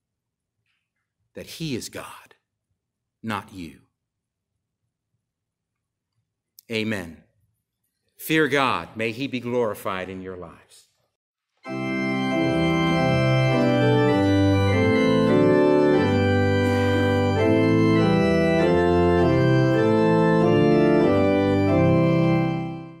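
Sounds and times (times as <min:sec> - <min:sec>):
organ playing held chords: 0:11.6 - 0:23.0.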